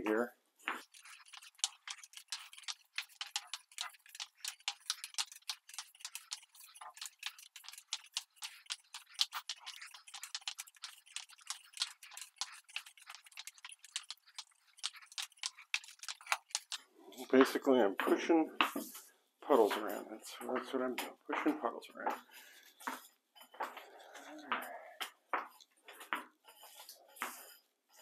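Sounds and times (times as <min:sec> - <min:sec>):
crackling of wet epoxy: 0:00.7 - 0:17.6.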